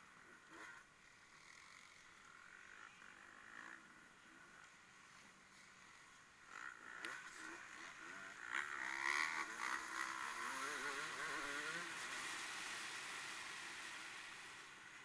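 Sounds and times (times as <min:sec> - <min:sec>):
racing engine revving: 0:08.6 - 0:13.0.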